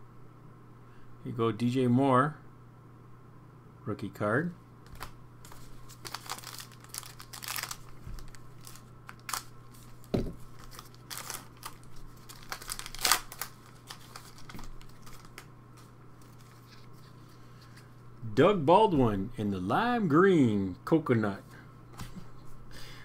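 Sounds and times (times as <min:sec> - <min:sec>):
pack wrapper rustling: 0:04.9 - 0:17.0
cards clicking and slapping: 0:10.6 - 0:16.5.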